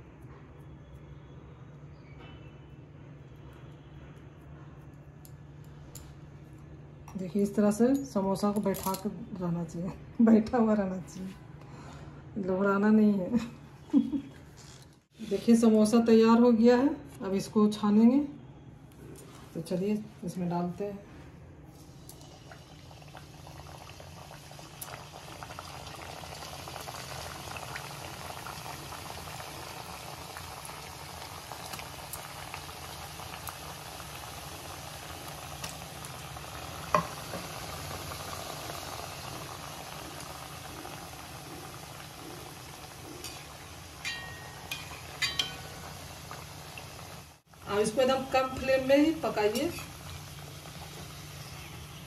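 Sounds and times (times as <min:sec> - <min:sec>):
food sizzling in hot oil: 0:21.7 - 0:52.0.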